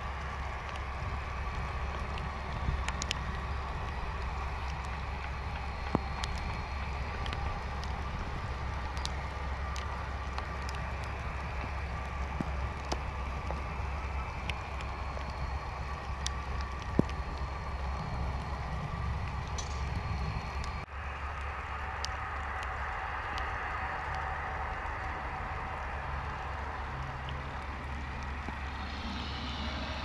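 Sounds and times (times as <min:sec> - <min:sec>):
jet airliner idling: 0:00.0 - 0:30.0
sharp ticks: 0:00.1 - 0:20.8.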